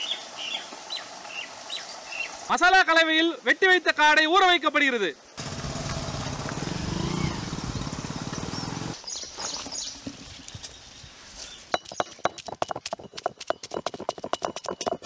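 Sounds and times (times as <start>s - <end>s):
stone roller knocking on slab: 11.7s - 15.0s.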